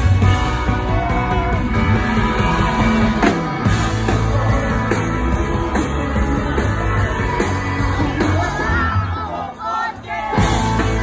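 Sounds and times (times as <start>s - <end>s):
electric guitar: 0.0s - 9.3s, 10.3s - 11.0s
live rock band playing: 0.0s - 11.0s
woman singing: 3.8s - 9.6s.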